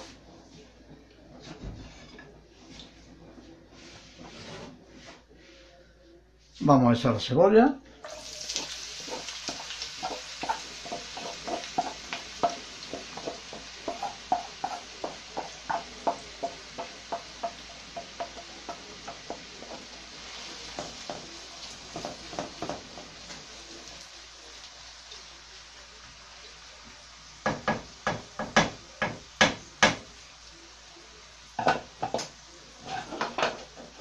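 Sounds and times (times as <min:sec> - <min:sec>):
spatula scraping a bowl: 0:01.5 - 0:02.8, 0:03.7 - 0:05.2
onions sizzling in hot oil: 0:08.0 - 0:34.0
wooden spatula tapping a pan: 0:08.5 - 0:20.0, 0:20.7 - 0:23.4, 0:27.4 - 0:30.1, 0:31.6 - 0:32.3.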